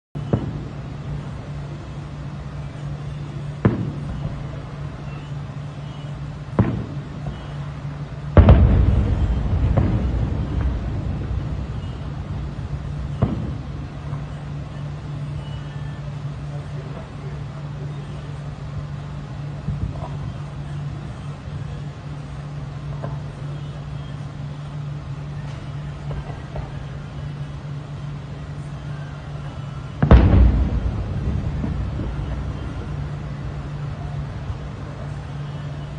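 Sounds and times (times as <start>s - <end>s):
distant firework pops: 0.2s - 0.8s, 3.6s - 4.6s, 6.5s - 7.6s, 8.4s - 14.4s, 30.0s - 33.5s
distant fireworks booming: 0.2s - 17.9s, 24.8s - 28.7s, 29.4s - 35.9s
road traffic hum: 0.2s - 35.9s
rumbling crackle of fireworks: 0.2s - 35.9s.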